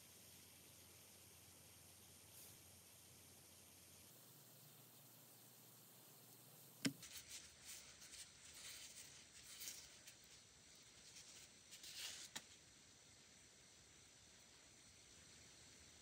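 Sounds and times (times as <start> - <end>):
wipe rustling on nail: 6.9 - 12.5.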